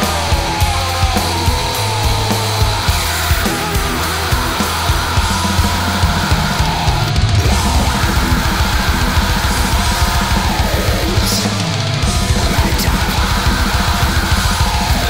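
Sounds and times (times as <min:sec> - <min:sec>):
distorted electric guitars: 0:00.0 - 0:15.0
fast dense drumming: 0:00.0 - 0:15.0.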